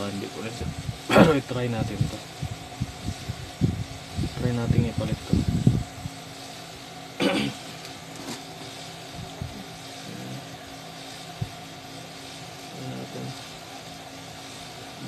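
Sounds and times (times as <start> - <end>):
steady mechanical hum: 0.0 - 15.0.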